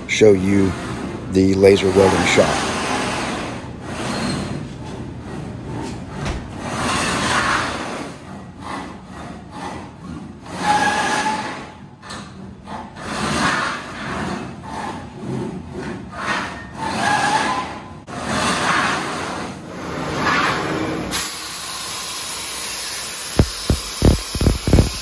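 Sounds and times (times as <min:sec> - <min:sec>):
machine drives whirring: 0:23.3 - 0:25.0.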